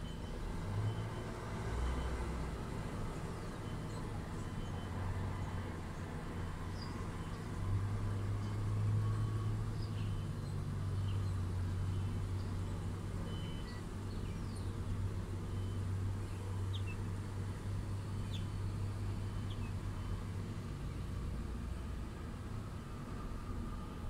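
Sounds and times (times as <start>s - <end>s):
small birds chirping: 9.7s - 15.0s, 15.6s - 17.1s, 17.9s - 20.1s.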